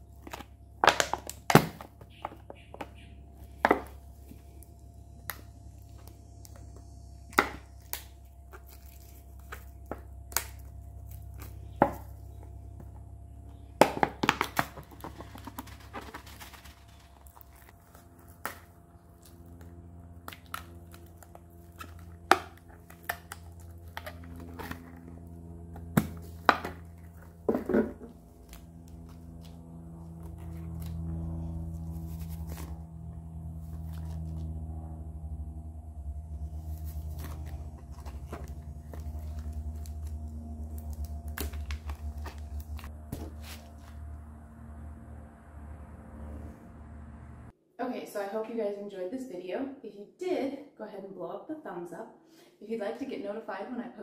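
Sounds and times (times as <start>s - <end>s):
low steady hum: 0.0s - 54.0s
crinkling and clatter: 13.6s - 34.5s, 36.5s - 44.0s.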